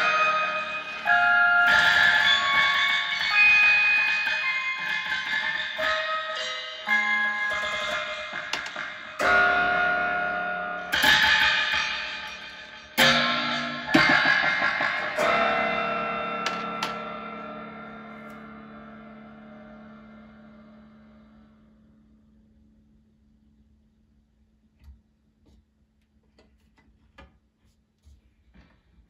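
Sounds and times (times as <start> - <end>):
spring being plucked and struck: 0.0 - 20.7
metallic spring ringing: 0.0 - 21.6.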